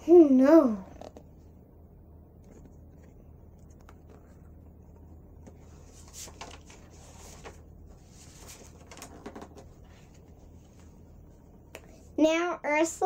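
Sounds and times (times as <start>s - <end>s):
low steady hum: 0.0s - 13.0s
book pages rustling: 2.4s - 11.0s.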